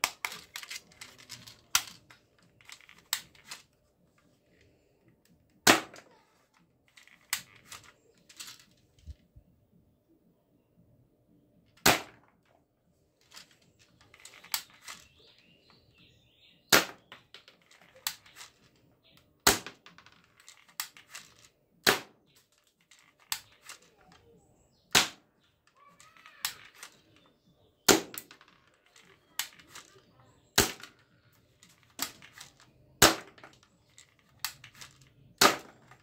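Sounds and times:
plastic gun clicks and rattles: 0.0 - 9.2, 13.2 - 15.5, 16.7 - 25.2, 26.0 - 36.0
toy pistol shots snapping: 5.6 - 6.1, 11.8 - 12.2, 16.7 - 17.1, 19.4 - 19.8, 21.8 - 22.2, 24.9 - 25.2, 27.9 - 28.3, 30.6 - 30.9, 33.0 - 33.4, 34.4 - 36.0.

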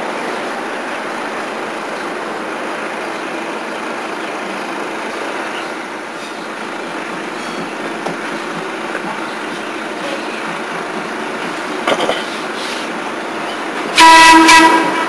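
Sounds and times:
steel wheels on rail: 0.0 - 15.0
traction motors running: 3.0 - 13.9.

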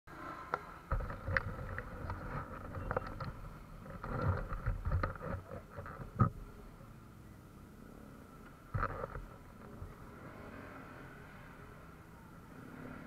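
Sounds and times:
knocks and bumps: 0.9 - 6.4.

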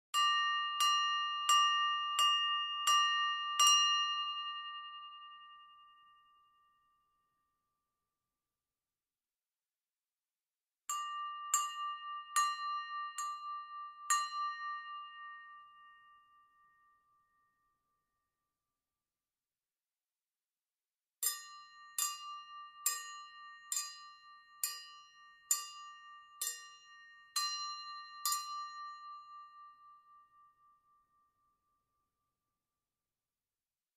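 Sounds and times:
silverware struck ringing: 21.2 - 29.3.

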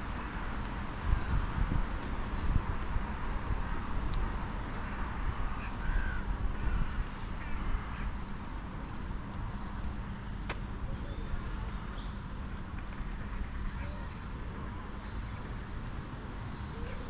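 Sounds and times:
small songbird singing: 11.0 - 14.5.

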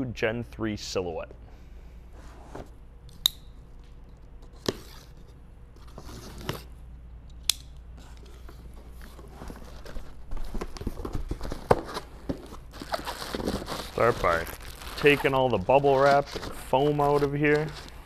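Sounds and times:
cardboard flaps and packing handled: 8.4 - 18.0.

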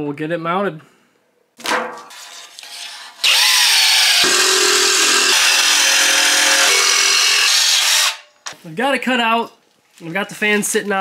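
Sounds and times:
jigsaw cutting metal sheet: 2.6 - 8.2.

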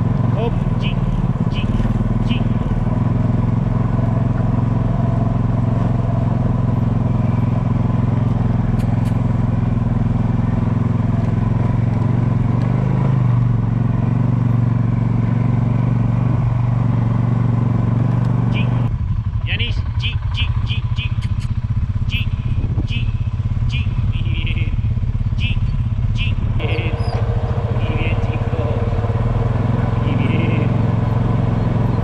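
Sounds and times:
quad engine humming: 0.0 - 32.0.

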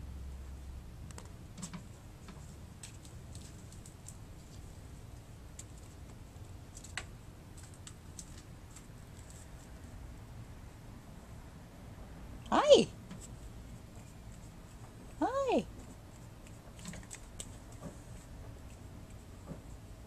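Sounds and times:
low room hum: 0.0 - 20.0
kittens tapping and clicking: 1.1 - 4.8, 5.5 - 9.4, 15.8 - 20.0.

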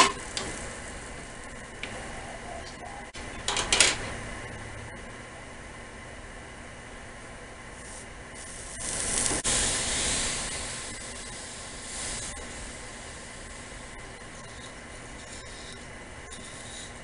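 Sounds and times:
hiss: 7.8 - 17.0.

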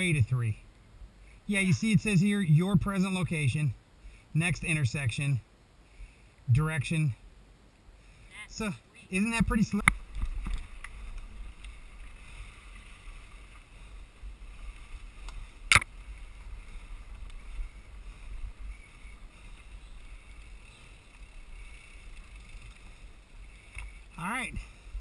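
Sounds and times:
bike rumbling on dirt trail: 9.3 - 25.0.

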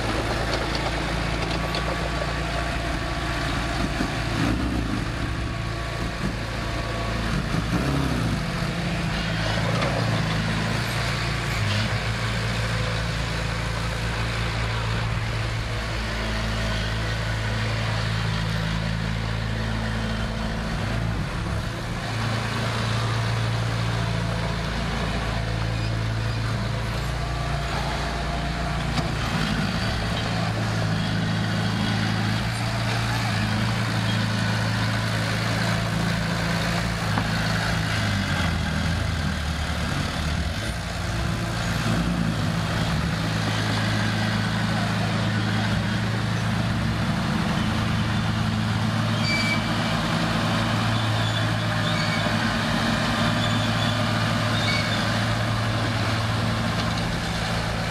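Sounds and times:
diesel engines running: 0.0 - 57.9.

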